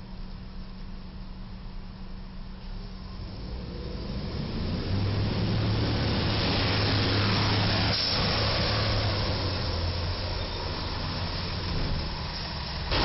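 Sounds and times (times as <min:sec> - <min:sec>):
diesel engine drone: 0:00.0 - 0:13.0
tyre hiss on wet road: 0:05.8 - 0:13.0.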